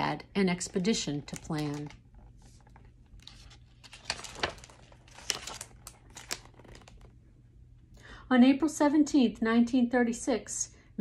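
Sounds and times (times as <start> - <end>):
paper page turning: 0.7 - 7.1.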